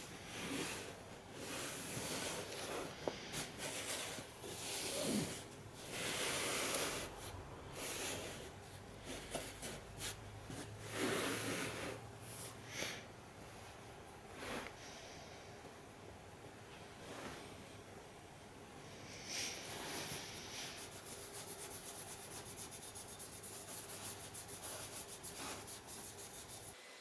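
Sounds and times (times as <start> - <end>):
cloth rubbing on helmet: 0.2 - 12.6, 19.6 - 26.8.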